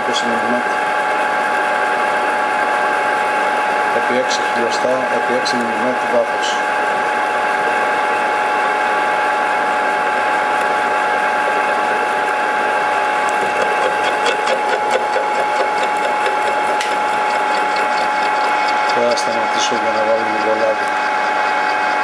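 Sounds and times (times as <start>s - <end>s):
milling machine motor whine: 0.0s - 22.0s
grinding of metal cut: 12.9s - 22.0s.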